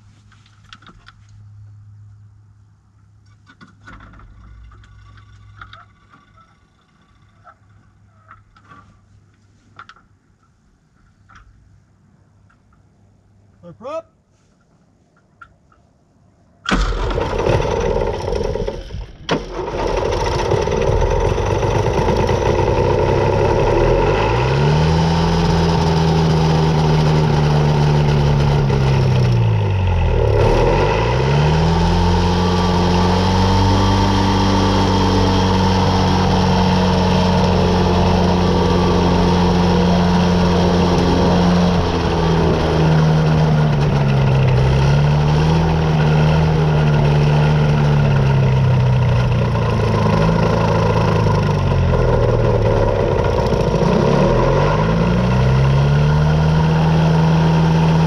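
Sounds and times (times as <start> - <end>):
small aircraft engine running: 16.7 - 58.0.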